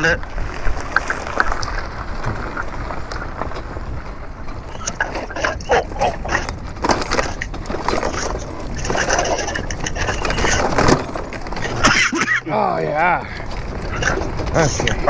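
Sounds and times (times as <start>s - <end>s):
wind rushing over microphone: 0.0s - 12.0s
tyres crunching and rattling: 0.0s - 15.0s
knocks and clatter: 0.9s - 12.4s, 13.3s - 15.0s.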